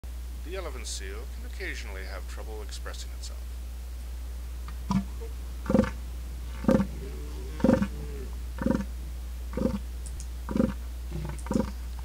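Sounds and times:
steady low hum: 0.0s - 12.0s
elephant seal calling: 4.9s - 8.9s, 9.5s - 9.8s, 10.5s - 11.8s.

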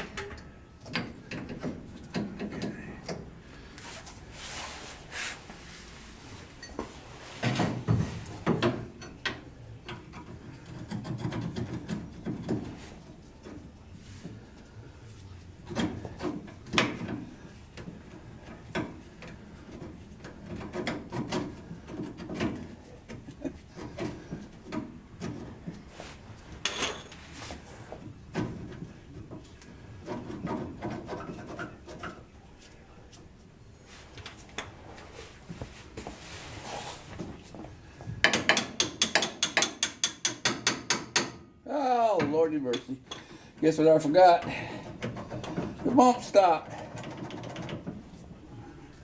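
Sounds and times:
metal knocks and clinks: 26.6s - 27.2s.

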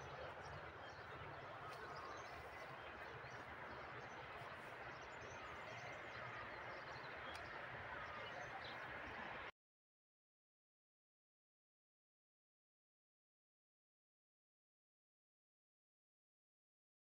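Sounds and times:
outdoor background noise: 0.0s - 9.5s.

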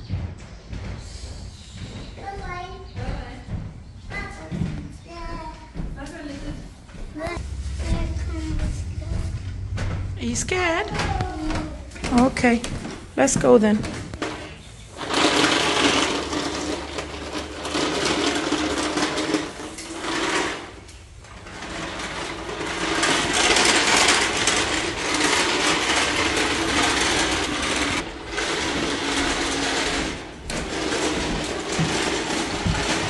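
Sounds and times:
toy vacuum cleaner rattling whir: 14.2s - 20.8s, 21.4s - 33.0s.

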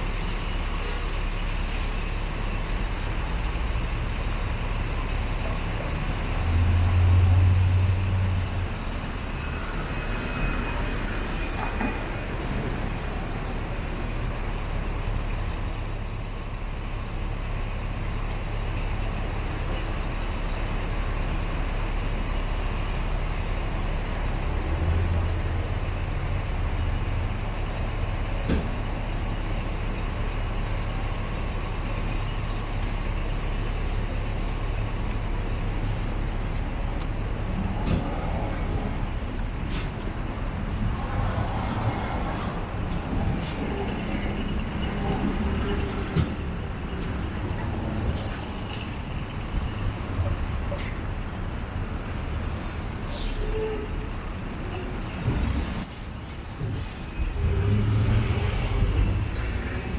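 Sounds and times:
heavy vehicle engine: 0.0s - 59.9s
rumble of passing cars: 0.0s - 59.9s
hiss: 52.4s - 53.6s.

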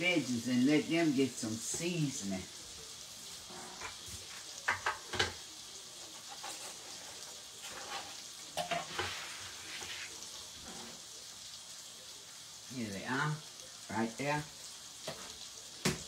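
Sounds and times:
chicken sizzling in hot oil: 0.0s - 16.0s
kitchenware clinking: 3.5s - 5.4s, 7.6s - 9.2s.

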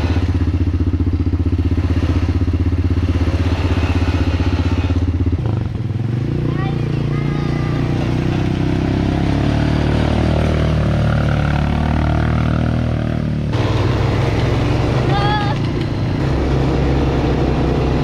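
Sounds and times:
quad bike engines running: 0.0s - 18.0s.

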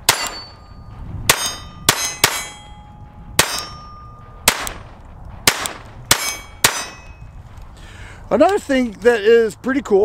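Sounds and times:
pistol shots: 0.0s - 0.6s, 1.3s - 2.8s, 3.4s - 7.2s
steel gong target ringing: 0.0s - 4.7s, 6.1s - 7.4s.

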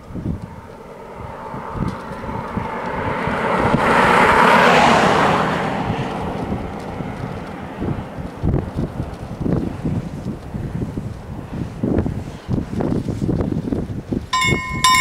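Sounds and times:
wind rumble on microphone: 0.0s - 15.0s
vehicle driving past: 0.1s - 9.5s.

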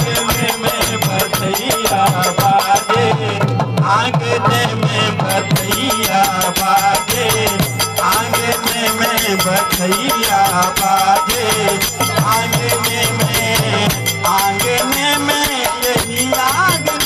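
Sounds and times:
man singing: 0.0s - 17.0s
shaken rattle percussion: 5.3s - 17.0s.

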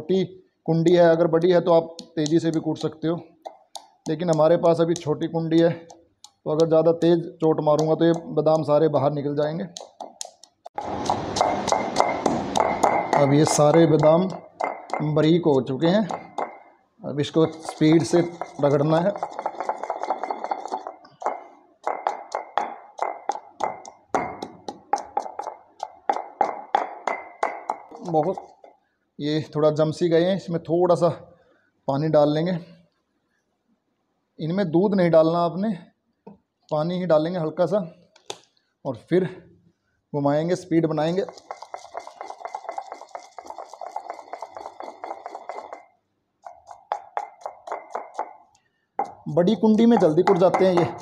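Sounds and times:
pestle pounding in stone mortar: 2.0s - 5.2s, 7.6s - 8.8s, 9.8s - 16.7s, 17.4s - 28.7s, 40.9s - 51.0s.

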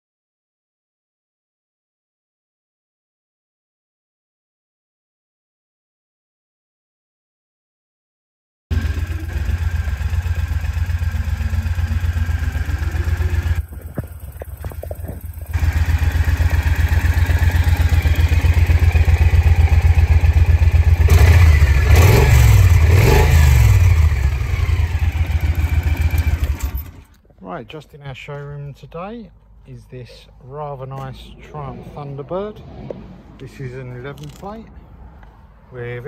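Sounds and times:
motorcycle engine idling and revving: 8.7s - 27.2s.

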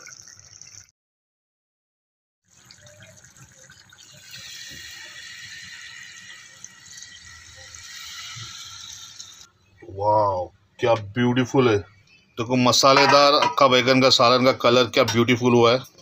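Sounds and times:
liquid pouring into a pot: 0.0s - 0.9s, 2.4s - 9.5s.

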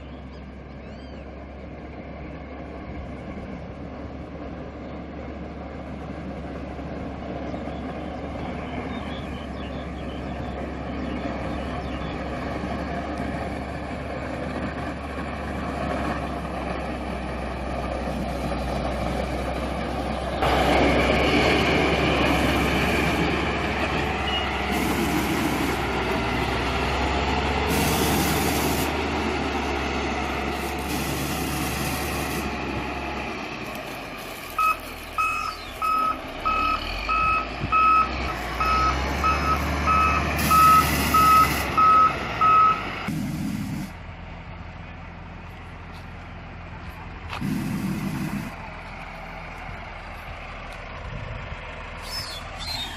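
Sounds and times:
diesel engine running under load: 0.0s - 52.9s
reversing alarm beeping: 34.6s - 42.9s.

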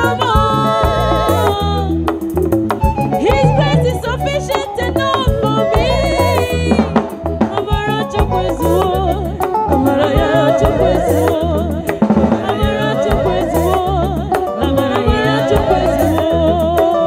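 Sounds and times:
low bass line: 0.0s - 4.5s
drum kit: 0.0s - 17.0s
keyboard: 0.0s - 17.0s
women singing into microphones: 0.0s - 17.0s.

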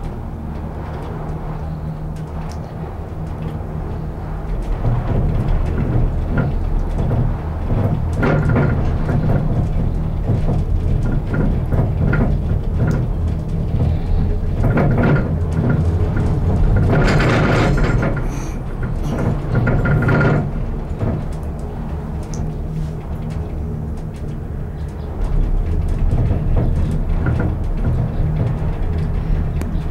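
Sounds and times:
gondola cabin low hum: 0.0s - 29.9s
cabin rattling and clattering: 4.8s - 29.9s.

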